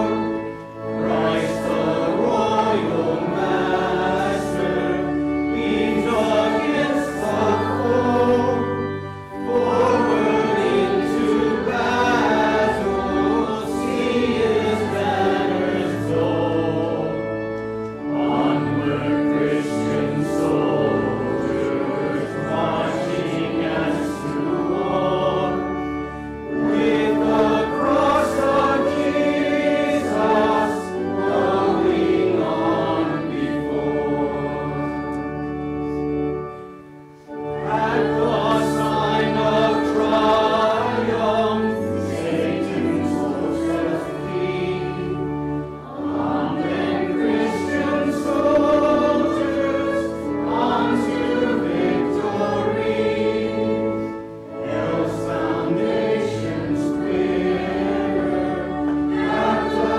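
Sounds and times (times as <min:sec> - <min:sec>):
congregation singing a hymn: 0:00.0 - 0:59.9.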